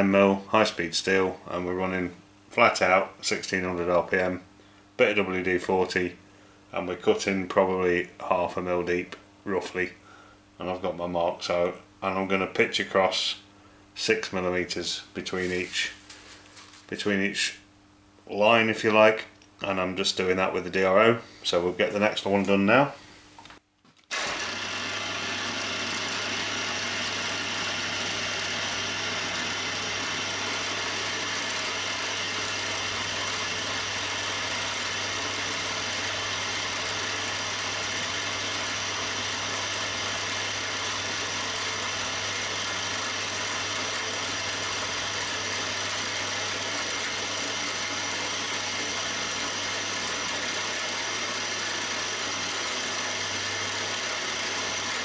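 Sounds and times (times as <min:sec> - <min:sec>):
milling machine running: 0:24.1 - 0:55.0.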